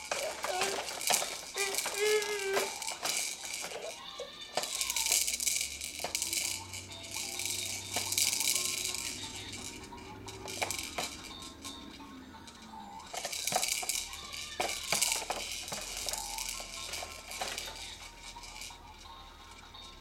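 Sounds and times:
beads rattling: 0:00.0 - 0:20.0
plastic toys clicking and clacking: 0:00.0 - 0:20.0
baby wavering vocal sound: 0:01.5 - 0:02.9.

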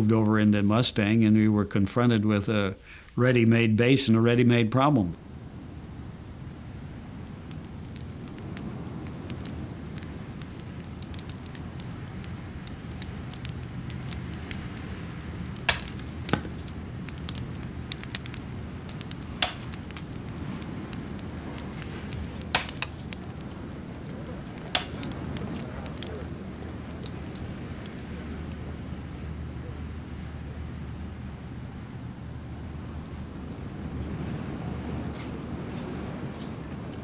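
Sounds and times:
wood fire crackling: 0:05.2 - 0:37.0
loud fire pops: 0:07.0 - 0:28.6.

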